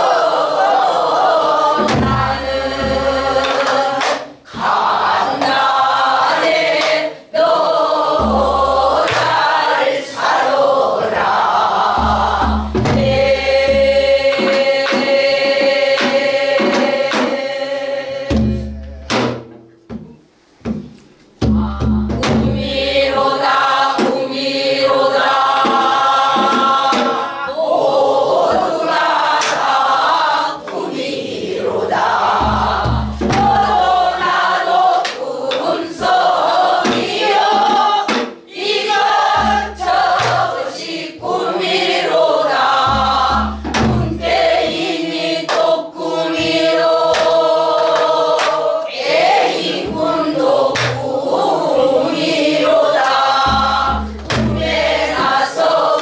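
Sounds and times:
mixed chorus singing folk song: 0:00.0 - 0:19.5, 0:21.4 - 0:56.0
barrel drum beating: 0:01.8 - 0:05.7, 0:08.2 - 0:09.8, 0:11.1 - 0:17.4, 0:18.3 - 0:24.4, 0:25.2 - 0:27.3, 0:31.9 - 0:34.7, 0:36.0 - 0:45.6, 0:49.2 - 0:56.0.

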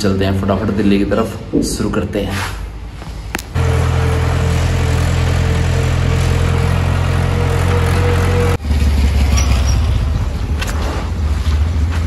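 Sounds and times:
tractor diesel engine droning: 0:03.6 - 0:10.5.

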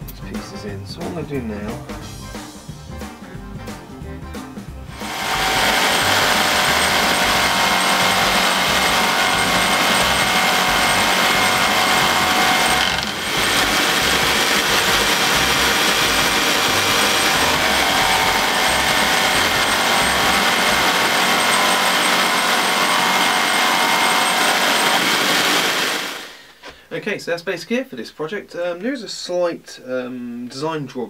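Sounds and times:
jigsaw sawing wood: 0:04.9 - 0:26.4.

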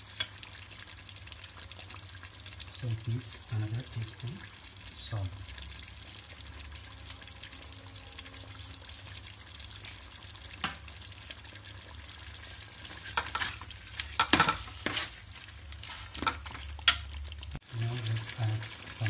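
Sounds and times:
gravy sizzling in a pot: 0:00.0 - 0:19.0
ladle scraping and clanking on pot: 0:12.8 - 0:15.2, 0:15.8 - 0:17.2.

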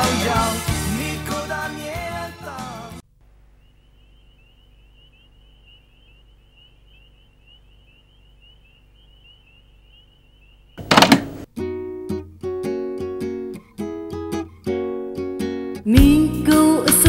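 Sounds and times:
low steady hum: 0:03.0 - 0:11.6
high-pitched chirping: 0:03.5 - 0:10.9.

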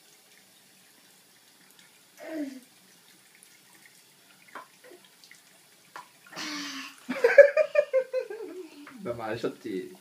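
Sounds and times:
tap water running into sink: 0:00.0 - 0:10.0
small child vocal sound: 0:02.2 - 0:02.7.

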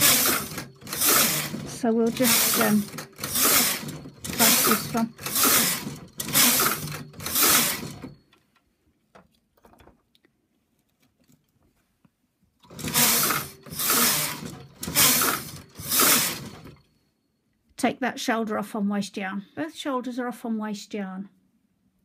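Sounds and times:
knitting machine carriage clattering swish: 0:00.0 - 0:08.2, 0:12.6 - 0:16.8.

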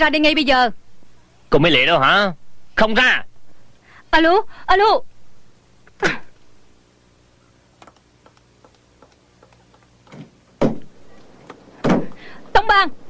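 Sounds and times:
loud knocks: 0:10.1 - 0:10.9, 0:11.8 - 0:12.2.

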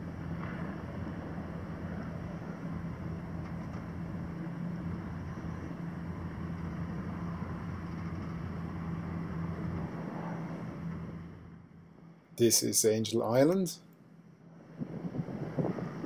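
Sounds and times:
boat engine humming: 0:00.0 - 0:16.0
wind and water rushing: 0:14.5 - 0:16.0.

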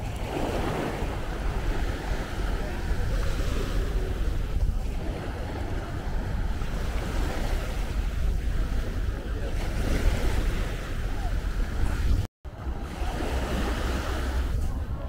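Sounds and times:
small waves washing onto beach: 0:00.0 - 0:15.0
wind buffeting microphone: 0:00.0 - 0:15.0.

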